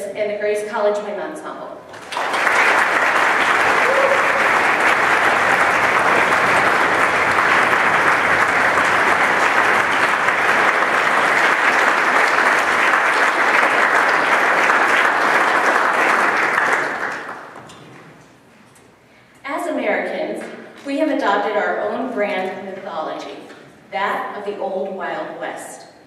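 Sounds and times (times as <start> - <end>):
audience applauding: 1.9 - 18.0.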